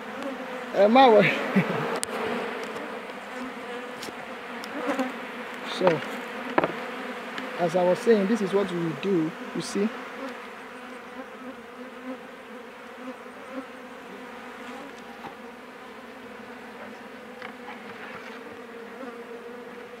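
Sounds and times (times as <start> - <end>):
bees buzzing: 0.0 - 20.0.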